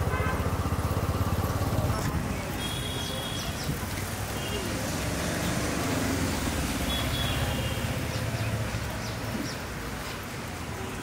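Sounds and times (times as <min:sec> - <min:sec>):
vehicle engine running: 0:00.0 - 0:04.3
roadside traffic: 0:00.0 - 0:11.0.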